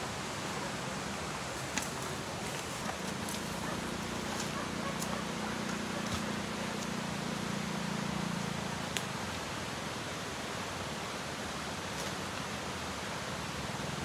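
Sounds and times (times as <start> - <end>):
steady rushing outdoor noise: 0.0 - 14.0.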